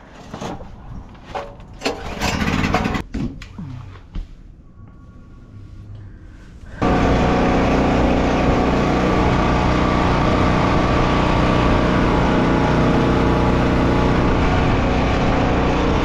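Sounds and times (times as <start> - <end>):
engine running steadily: 6.7 - 16.0.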